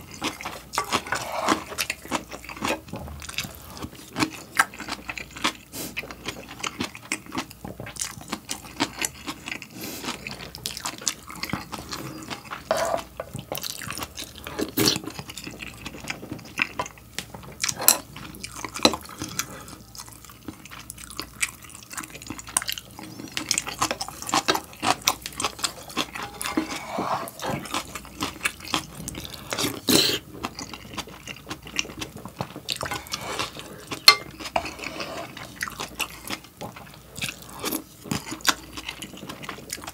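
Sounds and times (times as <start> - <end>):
slurping noodles: 0.8 - 2.1, 26.2 - 28.0, 32.7 - 35.8.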